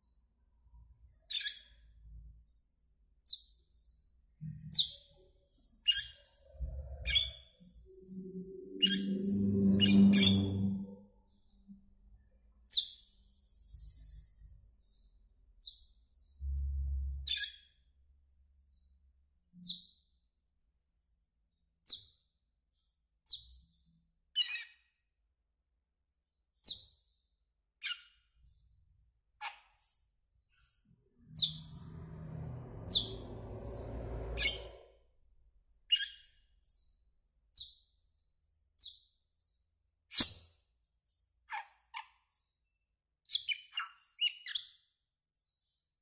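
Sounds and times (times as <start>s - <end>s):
low rumbling noise: 6.4s - 11.3s, 16.4s - 17.3s, 30.9s - 35.7s
starling calling: 7.9s - 11.0s.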